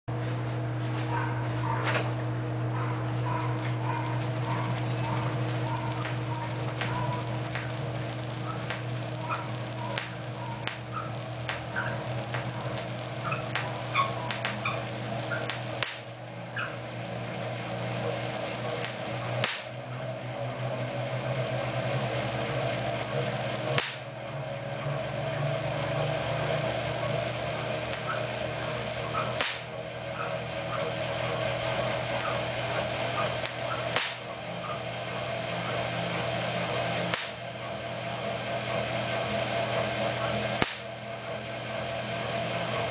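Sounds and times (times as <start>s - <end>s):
machine disks whirring: 1.7s - 42.9s
sparks cracking: 2.9s - 20.0s, 20.6s - 24.2s, 24.8s - 37.7s, 38.7s - 41.0s
light ticking: 3.4s - 16.0s.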